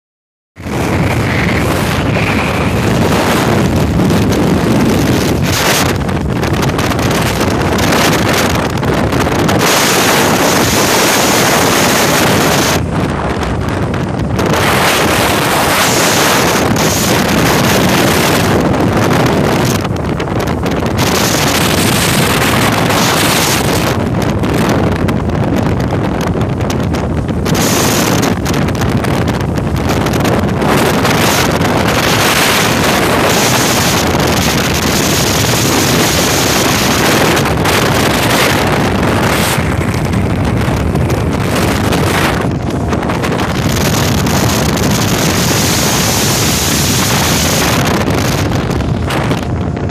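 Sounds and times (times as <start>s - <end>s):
boat motor: 0.6s - 49.9s
hull running on water: 0.6s - 49.9s
wind buffeting microphone: 0.6s - 49.9s.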